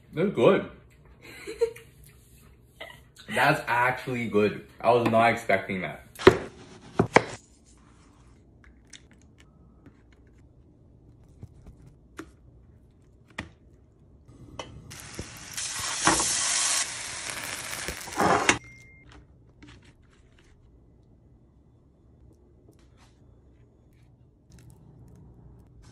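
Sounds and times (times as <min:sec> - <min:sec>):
watermelon sizzling in frying pan: 0:14.7 - 0:18.6.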